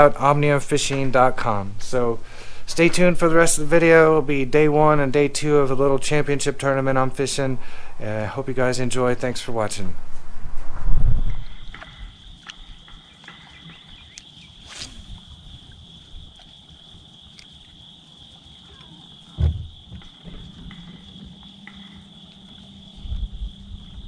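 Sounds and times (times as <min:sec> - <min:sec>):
insects chirring: 0:00.0 - 0:24.0
dull low thump: 0:19.2 - 0:22.1.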